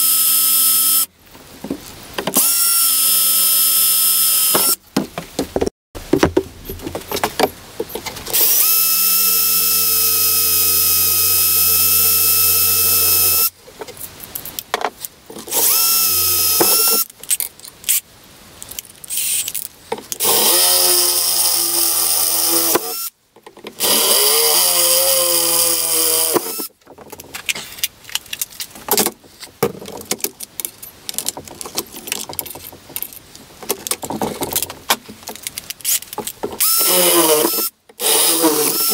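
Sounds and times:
drill motor whining: 0:00.0 - 0:01.1, 0:02.4 - 0:04.8, 0:08.4 - 0:13.5, 0:15.5 - 0:17.0, 0:20.2 - 0:23.1, 0:23.8 - 0:26.7, 0:36.6 - 0:38.9
drill bit cutting metal: 0:08.4 - 0:13.5, 0:15.5 - 0:17.0, 0:20.2 - 0:23.1, 0:23.8 - 0:26.7, 0:36.6 - 0:38.9.

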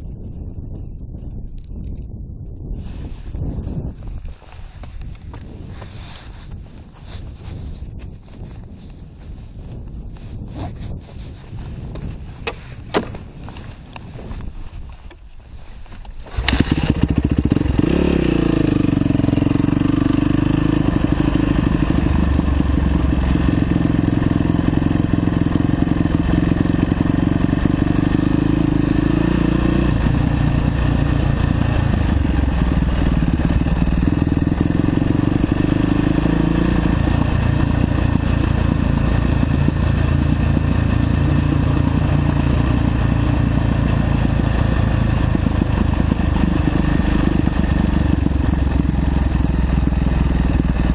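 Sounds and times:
dirt bike engine running: 0:16.0 - 0:50.9.

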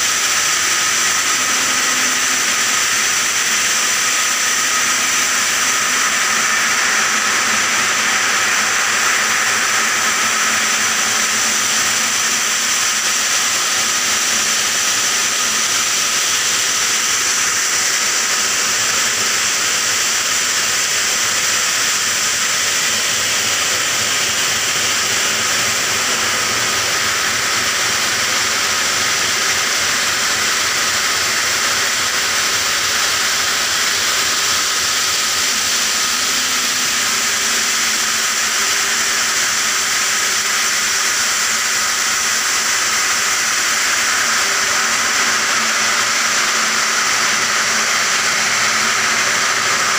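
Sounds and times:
saw blade grinding stone: 0:00.0 - 0:07.1.

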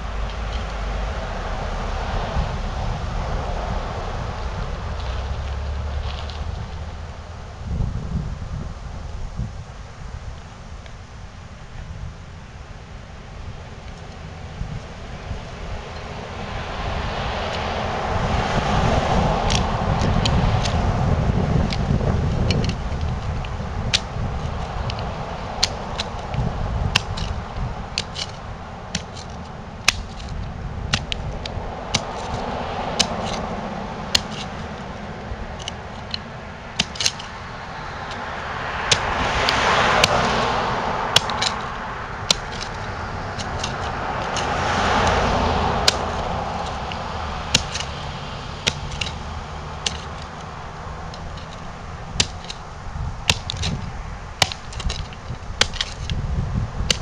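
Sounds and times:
low rumble: 0:00.0 - 0:57.0
vehicles passing by: 0:00.0 - 0:57.0
sharp irregular clicks and knocks: 0:19.4 - 0:20.8, 0:21.7 - 0:27.4, 0:28.0 - 0:32.4, 0:33.0 - 0:33.5, 0:34.1 - 0:34.8, 0:35.6 - 0:37.4, 0:38.9 - 0:40.3, 0:41.1 - 0:48.0, 0:48.6 - 0:49.2, 0:49.8 - 0:52.6, 0:53.3 - 0:56.2.

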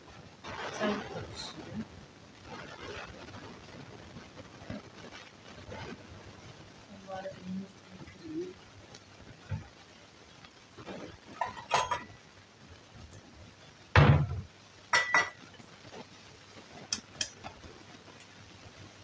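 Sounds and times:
dishes clinking: 0:11.4 - 0:12.2, 0:14.0 - 0:15.4
dull thump: 0:14.0 - 0:14.5.

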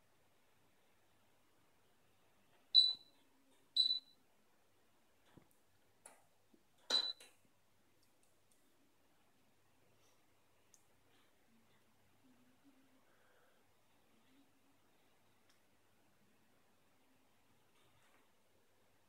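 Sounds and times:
touch panel beeps: 0:02.8 - 0:03.1, 0:03.8 - 0:04.1, 0:06.9 - 0:07.2.

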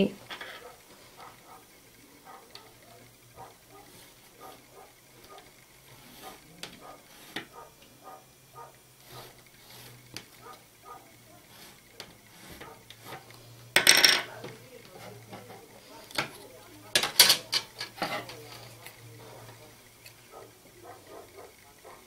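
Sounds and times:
pencil scratching on fabric: 0:00.6 - 0:13.4.

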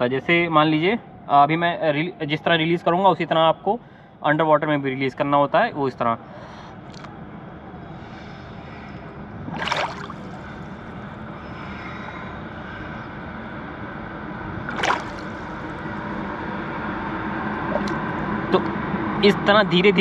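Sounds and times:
pool water lapping: 0:09.4 - 0:11.3, 0:14.6 - 0:16.4
air bubbles gurgling: 0:09.5 - 0:10.8, 0:14.7 - 0:15.8.

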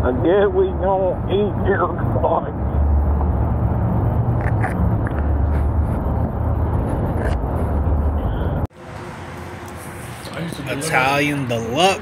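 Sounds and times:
motorcycle engine rumbling: 0:00.0 - 0:10.2
wind noise: 0:02.8 - 0:08.7.

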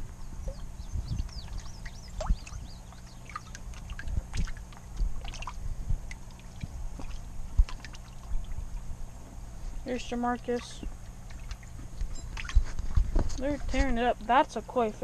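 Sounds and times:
steady low hum: 0:00.0 - 0:15.0
fish splashing at water surface: 0:01.5 - 0:08.6, 0:11.1 - 0:13.0.

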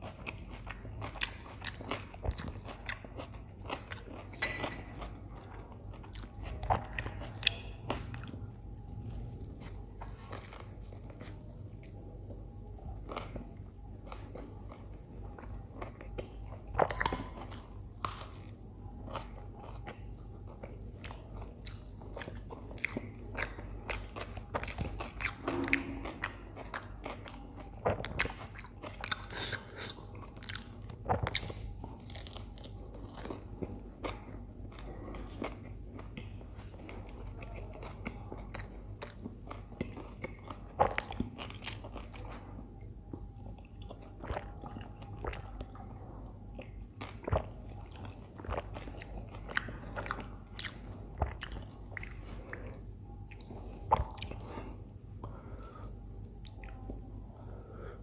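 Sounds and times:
crunching toasted bread: 0:00.0 - 0:42.4
chewing: 0:00.0 - 0:57.7.

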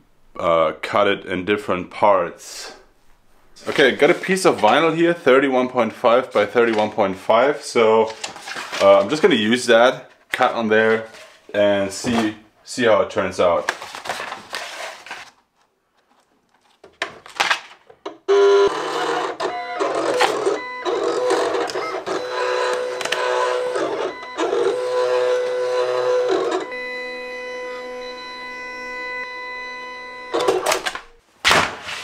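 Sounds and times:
cutting plotter motors whirring: 0:18.3 - 0:31.1.

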